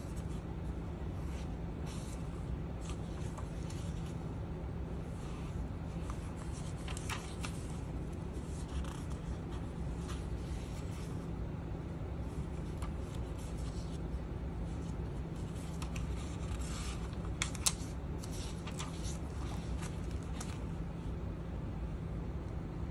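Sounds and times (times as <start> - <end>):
paper pages rustling: 0.0 - 4.3, 5.0 - 11.2, 12.2 - 20.9
steady low hum: 0.0 - 22.9.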